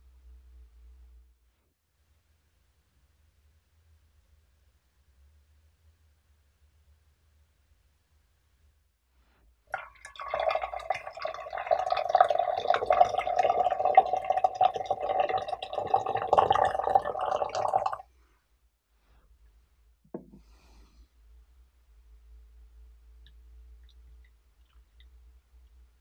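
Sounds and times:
water pouring into glass pitcher: 9.7 - 18.0
small knock: 20.1 - 20.5.

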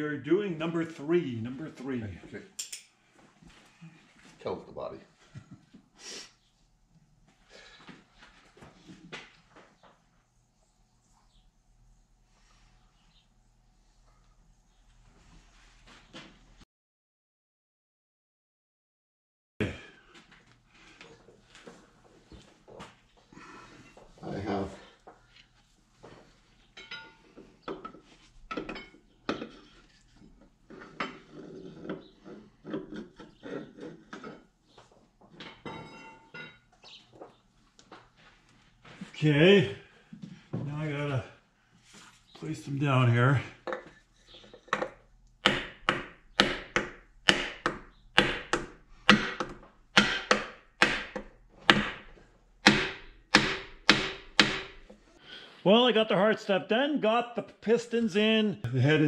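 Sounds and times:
metal clinks and knocks: 26.7 - 32.0, 35.3 - 36.8
hammer knocking on wooden block: 45.4 - 52.0, 52.6 - 54.8.

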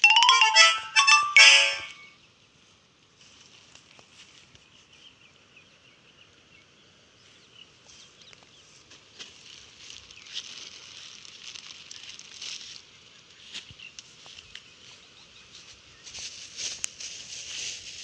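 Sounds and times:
plastic bag crinkling: 9.4 - 12.8.

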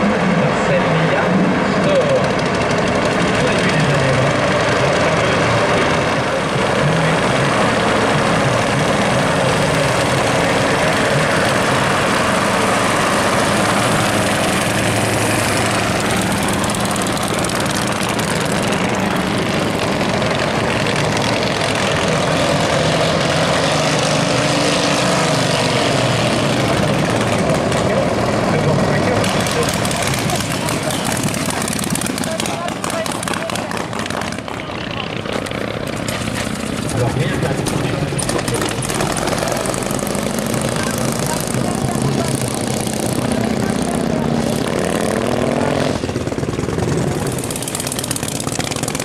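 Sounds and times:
propeller car engine running: 0.0 - 49.0.

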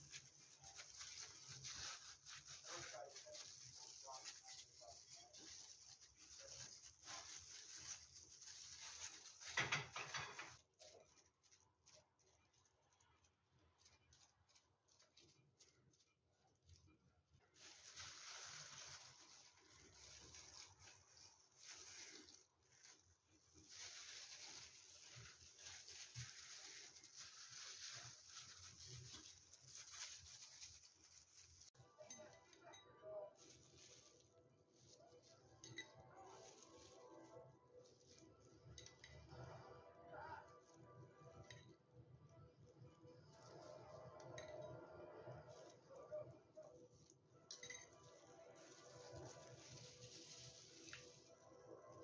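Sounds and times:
gloved hands rustling and squelching: 0.0 - 31.8, 47.0 - 52.0.

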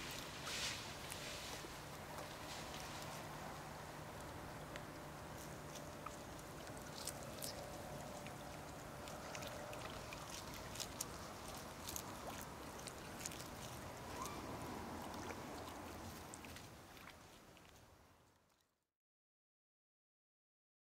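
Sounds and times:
faint outdoor background: 0.0 - 18.9
water drips and splashes: 6.0 - 18.6.

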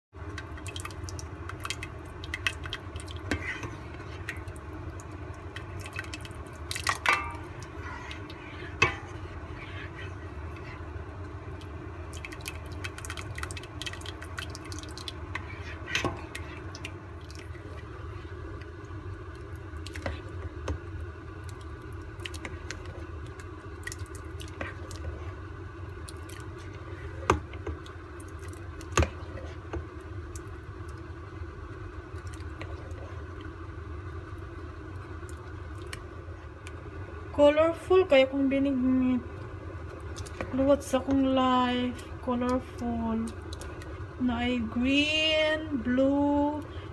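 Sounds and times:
steady low hum: 0.2 - 46.9
liquid dripping off ladle: 0.3 - 17.9
ladle stirring in metal pot: 0.3 - 18.6.

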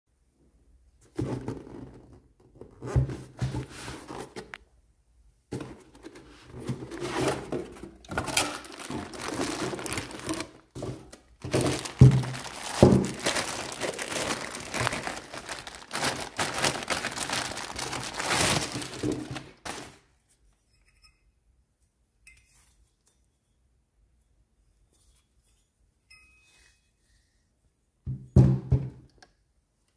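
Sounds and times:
cardboard box handled and opened: 1.1 - 4.6, 5.5 - 20.0
plastic wrapping crinkling: 6.5 - 20.1
knocks on box: 28.1 - 29.0.

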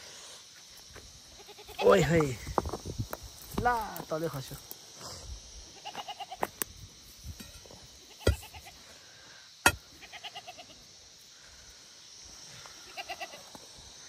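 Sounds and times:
goat bleating: 1.4 - 1.9, 5.8 - 6.4, 9.9 - 10.8, 12.8 - 13.4.

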